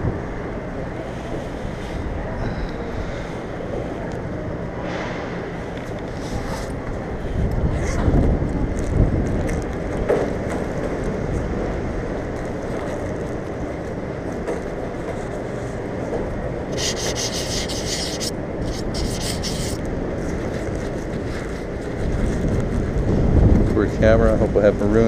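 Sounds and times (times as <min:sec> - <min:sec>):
rubbing on camera microphone: 0:06.0 - 0:06.8, 0:16.7 - 0:19.8, 0:20.4 - 0:22.6
short hissing bursts: 0:16.7 - 0:19.8.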